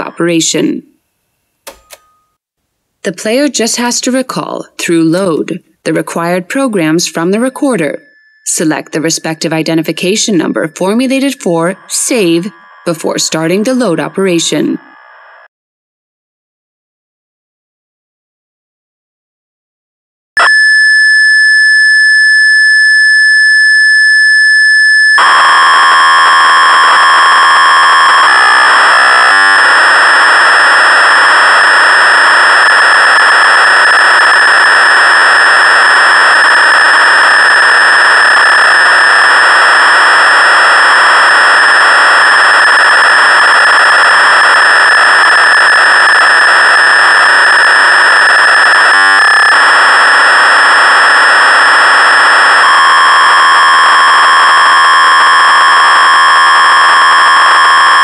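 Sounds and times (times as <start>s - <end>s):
buzzing data signal: 7.2s - 15.5s, 20.4s - 58.0s.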